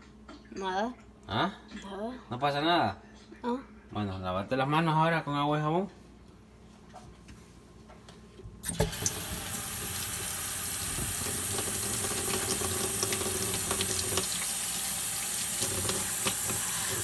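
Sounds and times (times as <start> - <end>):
faucet water running into sink: 8.6 - 17.0
hands washing under water: 9.0 - 17.0.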